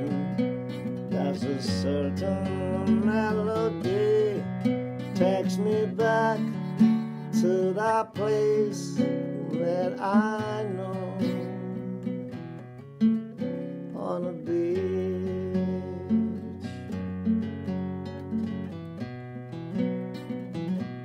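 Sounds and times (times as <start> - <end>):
man singing: 0.0 - 12.4, 13.9 - 16.9
acoustic guitar strumming: 0.0 - 21.0.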